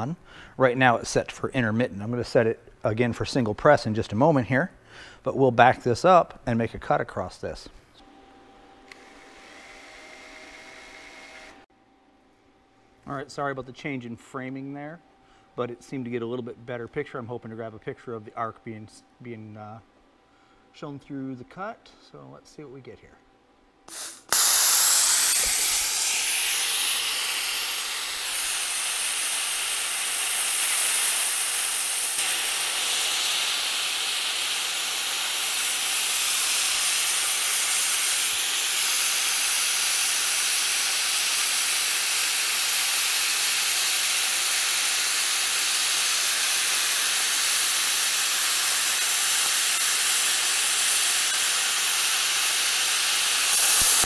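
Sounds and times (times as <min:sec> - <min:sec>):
plasma cutter hissing: 0:23.9 - 0:54.0.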